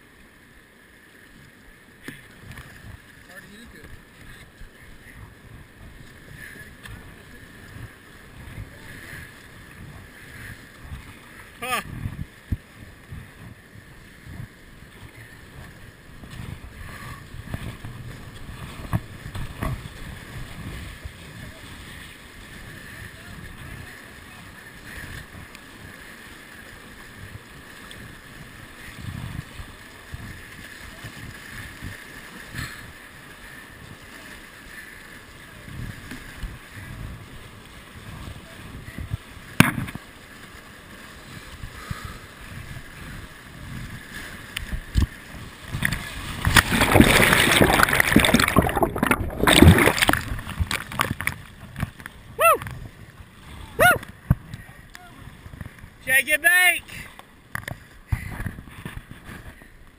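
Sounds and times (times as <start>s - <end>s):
wind rumbling on microphone: 2.1s - 26.0s, 26.6s - 34.1s, 35.4s - 40.0s, 41.2s - 56.1s, 57.5s - 59.9s
whitewater rapids rushing: 40.9s - 51.4s.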